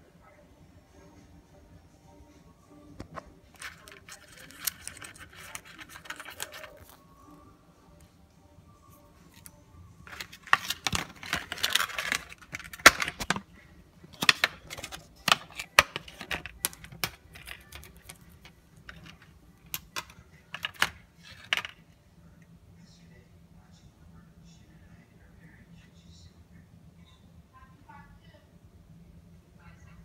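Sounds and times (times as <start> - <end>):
cable rustling and clicking: 3.0 - 7.0, 9.2 - 21.8.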